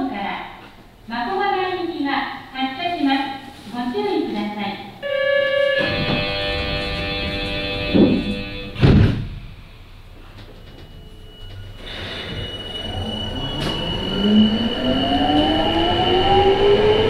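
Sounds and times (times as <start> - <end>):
steady high tone: 5.0 - 8.8, 9.6 - 17.0
train motor whine rising: 5.0 - 8.8, 9.6 - 17.0
train doors thumping shut: 5.8 - 9.6.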